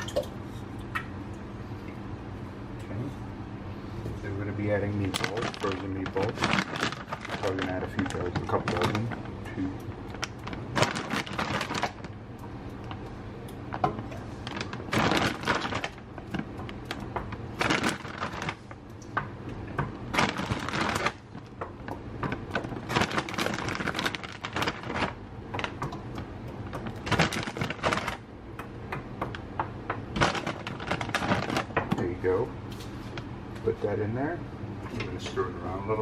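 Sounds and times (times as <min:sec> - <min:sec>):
frozen meatballs dropping into pot: 0:19.7 - 0:28.2.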